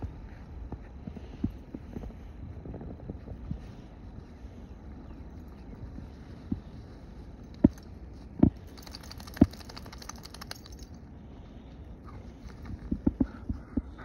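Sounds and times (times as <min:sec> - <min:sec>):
light metallic jingling: 0:08.7 - 0:11.0.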